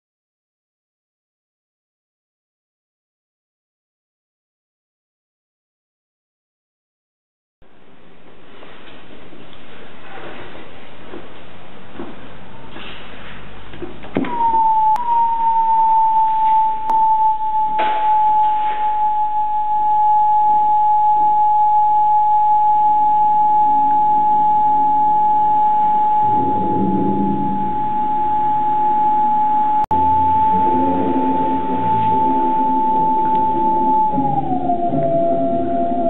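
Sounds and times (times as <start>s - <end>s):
theremin steady high tone: 14.2s - 36.0s.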